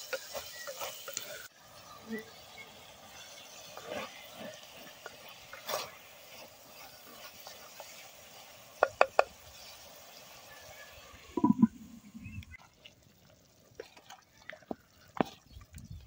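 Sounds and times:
wooden spoon stirring in pot: 0.0 - 1.5, 3.1 - 9.9, 12.5 - 15.8
meat sizzling: 0.0 - 14.2.

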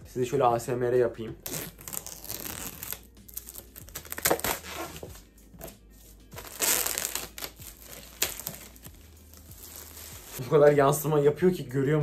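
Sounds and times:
box cutter slitting cellophane: 1.4 - 5.1, 6.4 - 8.7
cellophane crinkling: 6.4 - 10.4.

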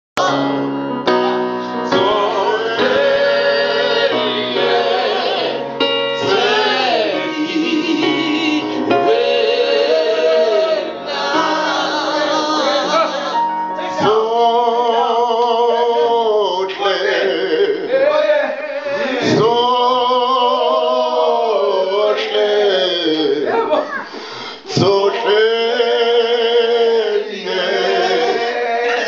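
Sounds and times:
electronic keyboard: 0.2 - 16.4
male vocal group singing: 0.2 - 29.0.

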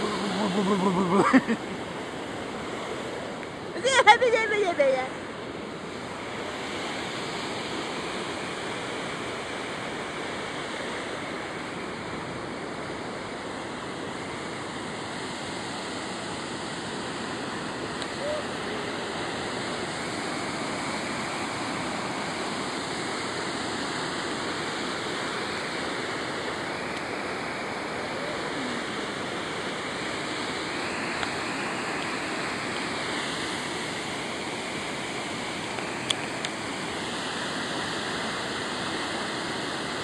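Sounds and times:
waterfall rushing: 0.0 - 5.0, 15.6 - 40.0.

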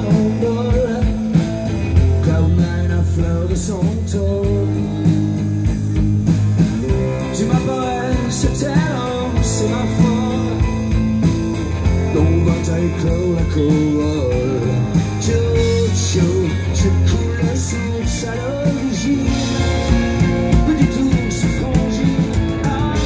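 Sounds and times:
bass guitar: 0.0 - 23.0
drum kit beat: 0.0 - 23.0
electric guitars: 0.0 - 23.0.

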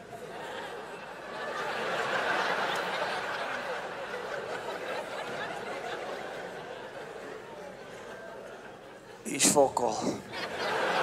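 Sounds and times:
audience laughing: 10.0 - 11.0.

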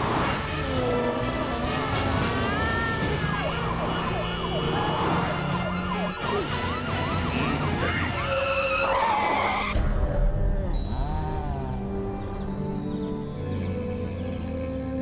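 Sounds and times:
fire engine sirens yelping: 0.0 - 9.8
steady siren tone: 0.3 - 9.8.

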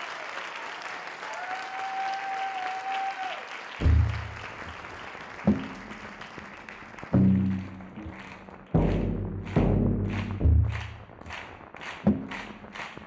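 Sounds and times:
audience applause: 0.0 - 13.0
deep low musical notes: 7.2 - 11.4.

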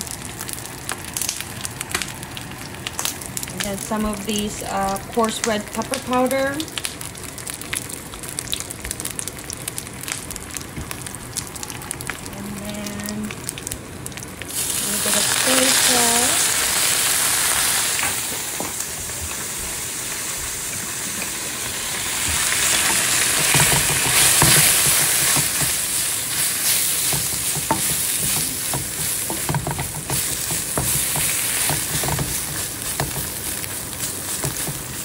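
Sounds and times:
food sizzling in oil: 0.0 - 35.0
wooden spatula scraping pan: 22.7 - 33.6.

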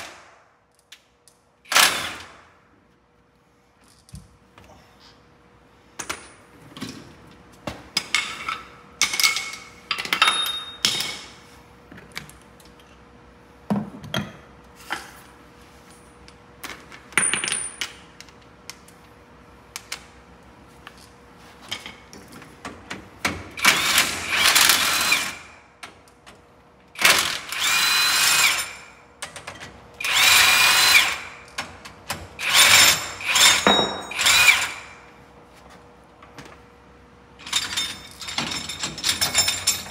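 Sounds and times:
impact tool running: 30.0 - 31.4, 32.4 - 35.0
metal tools clanking: 37.4 - 39.9.

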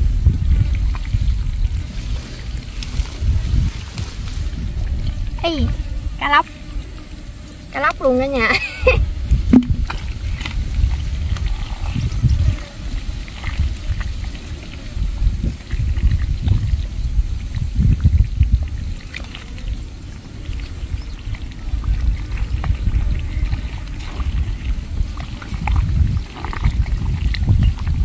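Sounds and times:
low rumble: 0.0 - 12.6
hands squelching through wet mud: 9.8 - 16.8, 17.4 - 28.0.

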